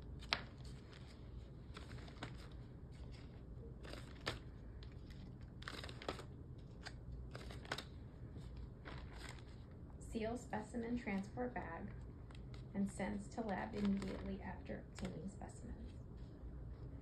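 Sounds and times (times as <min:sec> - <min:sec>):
plastic bag crinkling: 0:00.0 - 0:09.8, 0:13.4 - 0:15.1.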